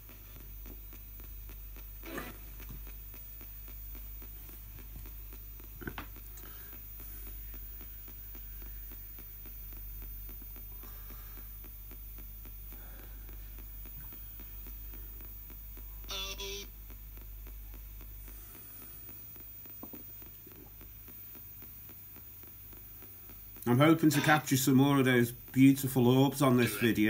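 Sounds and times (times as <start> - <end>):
radio hum and static hiss: 0.0 - 27.0
snatch of broadcast sound: 1.5 - 6.3.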